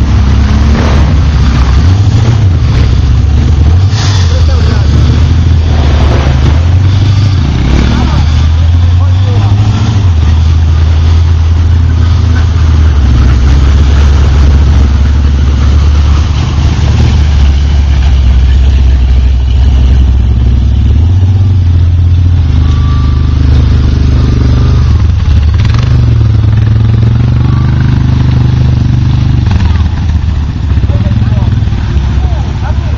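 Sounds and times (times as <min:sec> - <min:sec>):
atv engine revving: 0:00.0 - 0:32.9.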